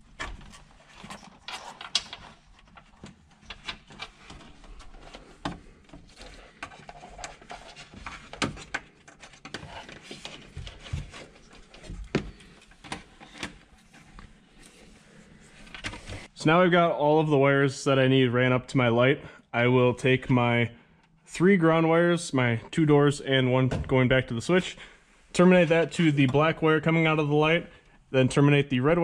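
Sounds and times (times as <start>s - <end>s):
hands handling wires on plastic: 0.0s - 16.3s.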